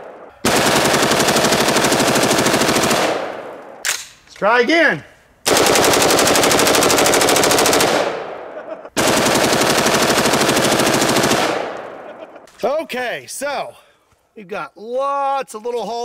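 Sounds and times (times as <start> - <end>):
rifle firing rapid bursts: 0.4 - 3.5, 5.5 - 8.3, 9.0 - 12.0.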